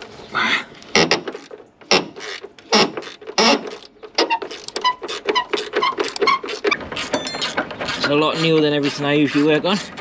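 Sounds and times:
hand tools clicking on metal: 0:04.5 - 0:07.7.

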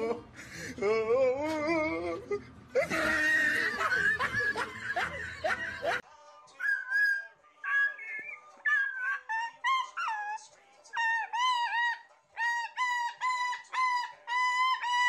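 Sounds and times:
person laughing: 0:00.0 - 0:06.0
cockatoo calls: 0:06.6 - 0:10.4, 0:11.0 - 0:15.0.

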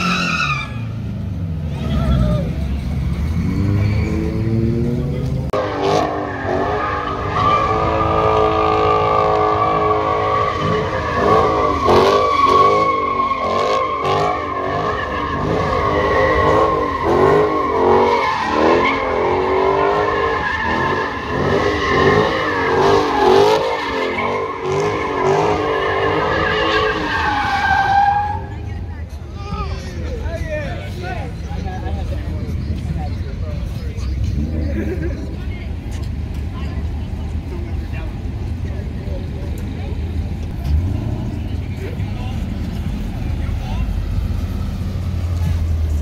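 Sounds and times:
tyres squealing: 0:00.0 - 0:01.0
car engine revving: 0:00.0 - 0:28.7, 0:36.1 - 0:46.0.

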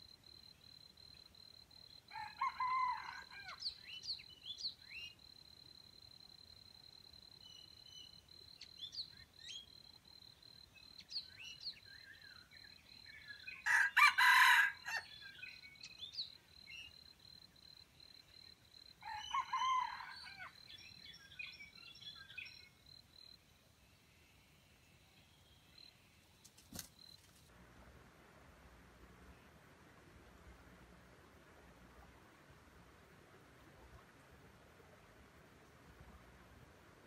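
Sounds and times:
rooster crowing: 0:02.1 - 0:03.6, 0:13.6 - 0:15.1, 0:19.0 - 0:20.5.

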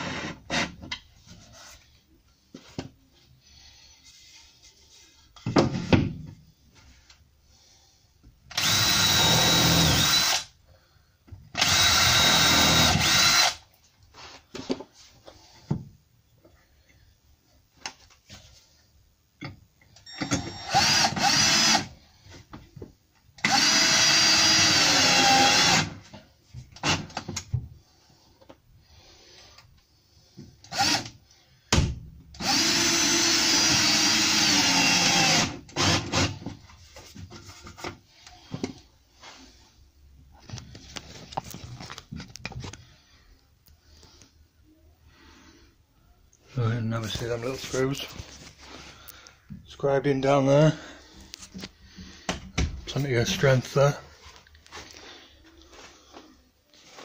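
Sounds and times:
knocks and handling sounds: 0:00.8 - 0:03.4, 0:13.8 - 0:16.6, 0:36.4 - 0:39.6, 0:40.2 - 0:43.0
cordless drill driving screws: 0:08.5 - 0:10.5, 0:11.6 - 0:13.6, 0:20.1 - 0:21.9, 0:23.4 - 0:26.0, 0:30.7 - 0:31.1, 0:32.4 - 0:36.4.

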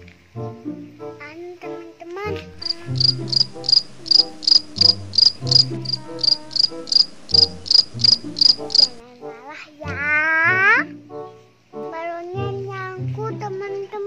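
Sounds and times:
cricket chirps: 0:02.6 - 0:09.0.

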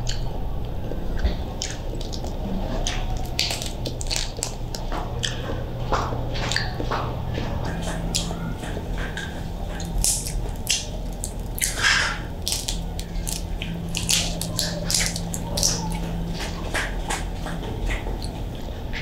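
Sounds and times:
shrimp shell crackling and snapping: 0:01.6 - 0:05.4, 0:09.0 - 0:18.4.

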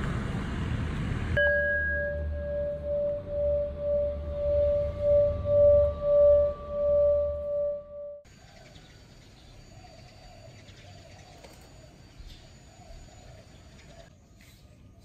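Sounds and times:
outdoor background hiss: 0:08.2 - 0:15.0.

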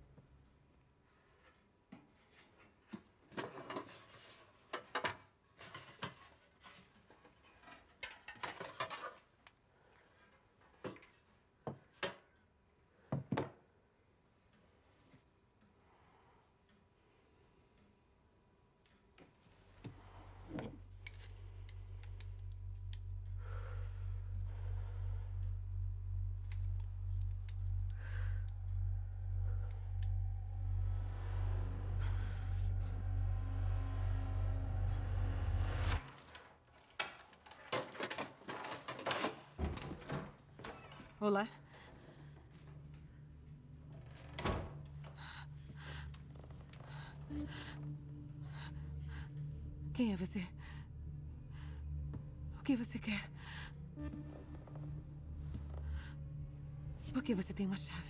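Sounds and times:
low pulsing drone: 0:20.0 - 0:36.2, 0:42.1 - 0:58.0.

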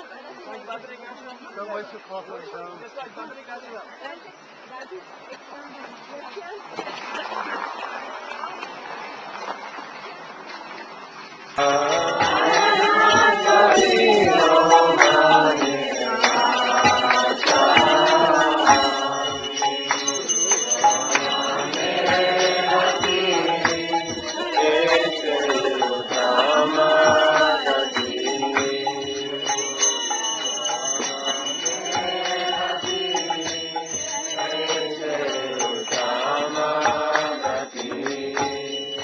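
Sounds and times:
high ringing tone: 0:11.6 - 0:39.0
voices chanting a mantra: 0:11.6 - 0:39.0.

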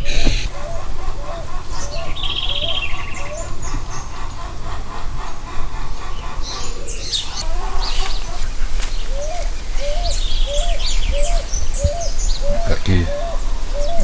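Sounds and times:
high bird chirps: 0:00.0 - 0:04.7
rising bird hoots: 0:00.0 - 0:14.0
steady low rumble: 0:00.0 - 0:14.0.

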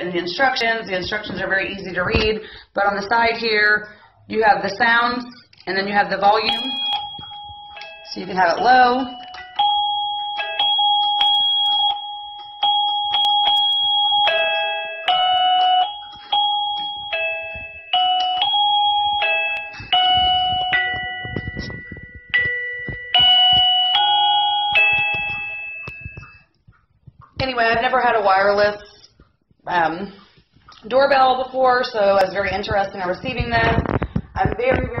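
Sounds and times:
doorbell chime melodies: 0:06.5 - 0:26.5.

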